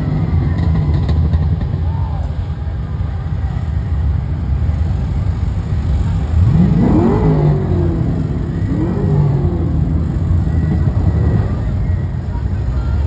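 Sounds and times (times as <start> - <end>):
car engines rumbling: 0.0 - 13.0
engine revving: 6.3 - 11.9.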